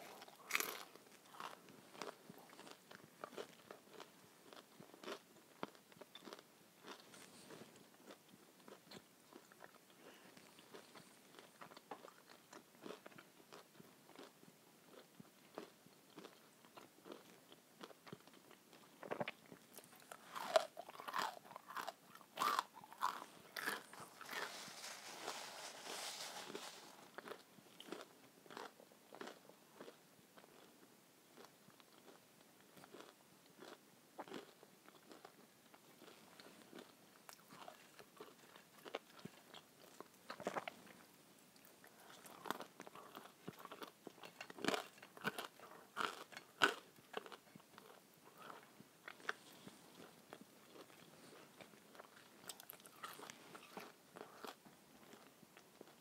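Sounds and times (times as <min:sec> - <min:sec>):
person chewing crunchy food: 0:00.0 - 0:32.2, 0:32.8 - 0:56.0
soft hiss: 0:23.2 - 0:27.8.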